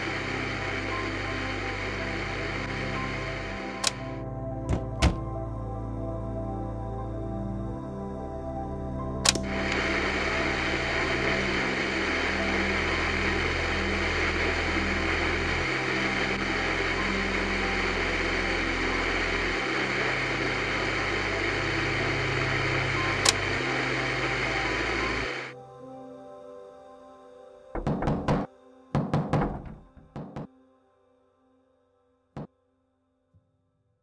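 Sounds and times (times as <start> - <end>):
radio static hissing: 0.0 - 5.2, 9.3 - 25.6
low hum: 0.0 - 25.6.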